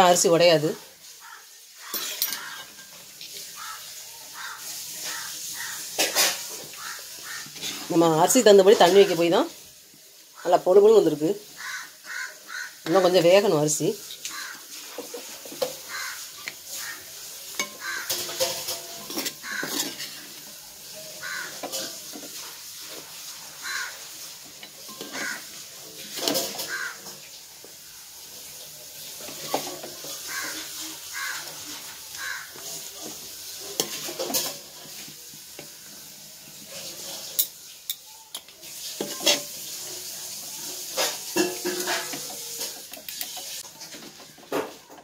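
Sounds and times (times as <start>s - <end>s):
faint sizzle: 0.0s - 45.0s
ladle scraping rice in a pot: 4.6s - 8.0s, 14.1s - 20.6s, 29.0s - 35.3s, 36.6s - 37.7s, 38.6s - 44.1s.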